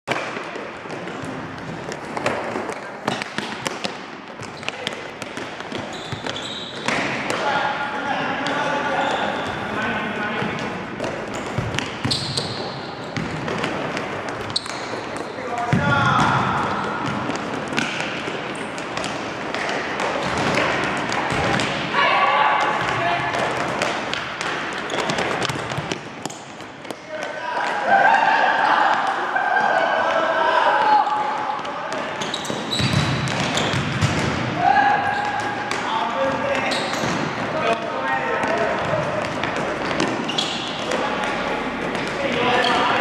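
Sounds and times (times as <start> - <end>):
background noise: 0.0 - 43.0
indoor hall noise: 0.0 - 43.0
players' feet on court: 0.1 - 7.6, 8.4 - 28.2, 30.0 - 43.0
ball kicked and bouncing: 11.3 - 12.5, 32.7 - 34.4.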